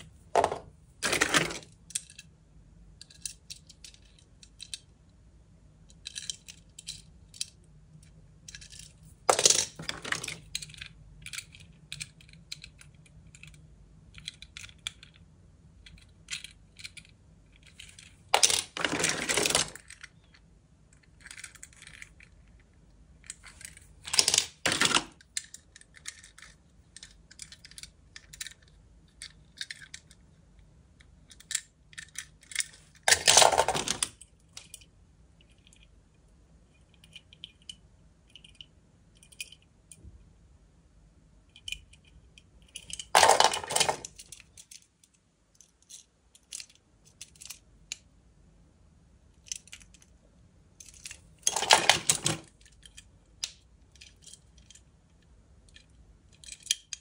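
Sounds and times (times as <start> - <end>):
pile of toy cars clattering: 0.4 - 2.1, 8.6 - 10.6, 17.7 - 20.0, 23.3 - 26.6, 31.4 - 34.8, 42.8 - 44.4, 50.8 - 53.0
metal toy cars clinking: 15.8 - 20.2, 23.2 - 30.2, 31.3 - 35.9, 41.6 - 44.9, 50.8 - 54.8, 55.7 - 57.0.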